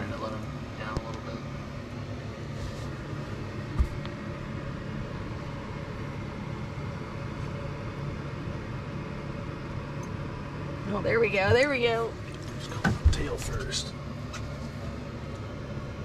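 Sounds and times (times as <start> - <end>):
low mechanical hum: 0.0 - 16.0
dull thump: 3.7 - 4.1.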